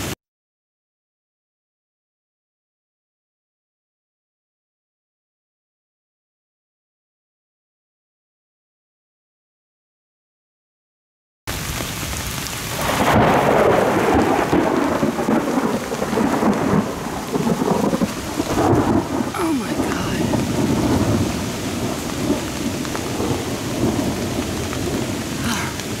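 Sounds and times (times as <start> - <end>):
steady rain: 11.5 - 26.0
thunder rumbling: 12.7 - 26.0.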